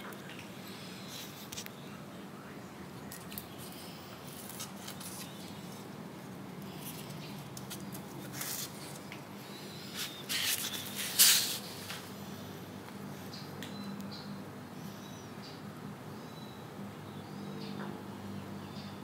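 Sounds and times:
scrapes rustles and clicks: 0:06.7 - 0:09.2, 0:09.9 - 0:12.1.

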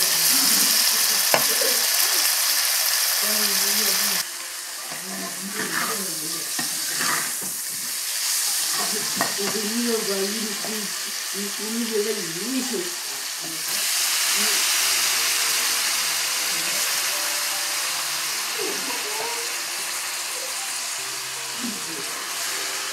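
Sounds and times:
food sizzling in a wok: 0:00.0 - 0:22.9.

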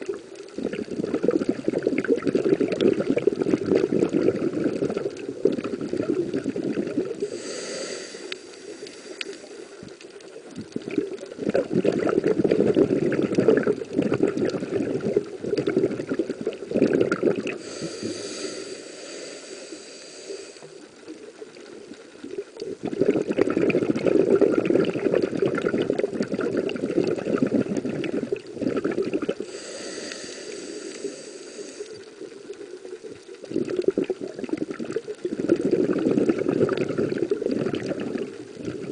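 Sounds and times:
rumbling exhaled bubbles: 0:00.0 - 0:07.8, 0:09.3 - 0:18.7, 0:21.3 - 0:31.2, 0:32.1 - 0:38.9
hissing inhale through regulator: 0:06.6 - 0:10.3, 0:17.3 - 0:21.2, 0:29.2 - 0:32.9.

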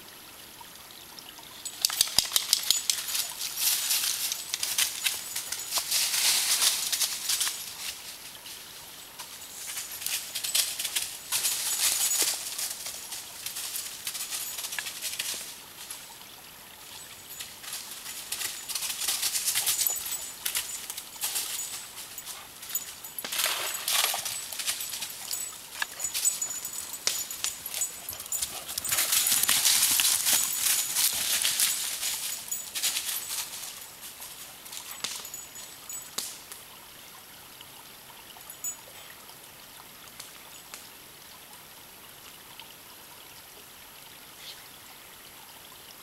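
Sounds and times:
dry leaves crunching under feet: 0:23.3 - 0:33.8.

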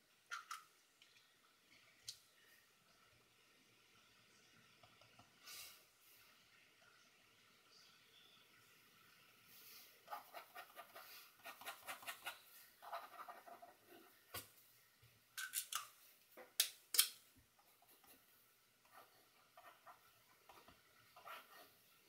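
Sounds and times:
pen scratching on paper: 0:10.1 - 0:14.1, 0:18.9 - 0:21.8.

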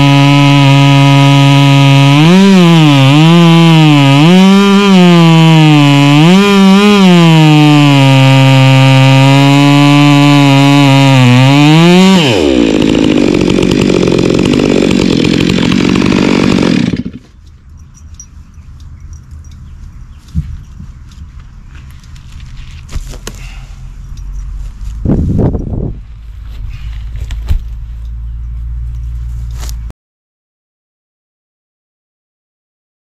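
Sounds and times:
chainsaw cutting wood: 0:00.0 - 0:18.2.

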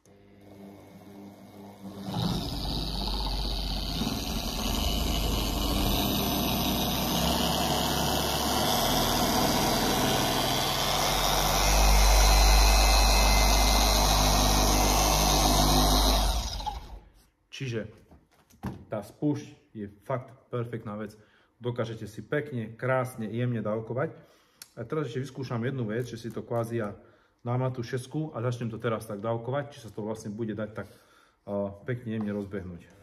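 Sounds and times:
dual-action polisher running: 0:00.0 - 0:17.1.

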